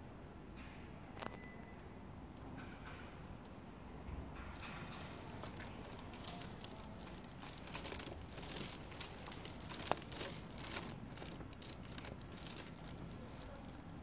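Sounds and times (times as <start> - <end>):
brief sharp squeak: 1.2 - 1.8
phone handling rustle: 4.6 - 14.0.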